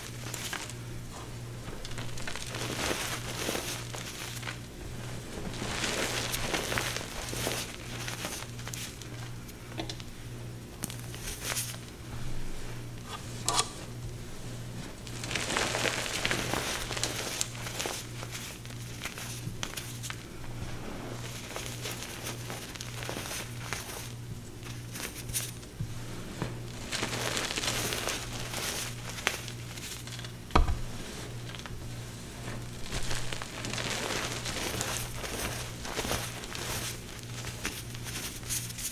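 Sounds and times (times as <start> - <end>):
steady low hum: 0.0 - 38.9
powder crunching under hands: 32.7 - 38.9.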